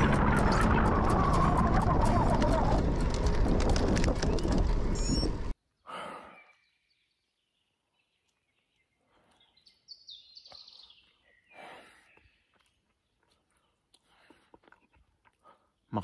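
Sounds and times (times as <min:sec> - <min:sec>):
wind and tyre noise: 0:00.0 - 0:05.6
songbird singing: 0:04.2 - 0:14.0
heavy breathing: 0:11.5 - 0:12.2.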